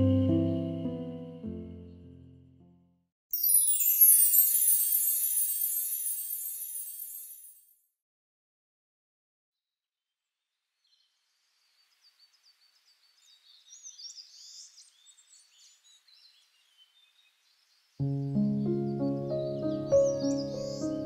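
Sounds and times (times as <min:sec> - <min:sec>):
background music: 0:00.0 - 0:02.4, 0:18.0 - 0:21.0
small birds chirping: 0:10.8 - 0:21.0.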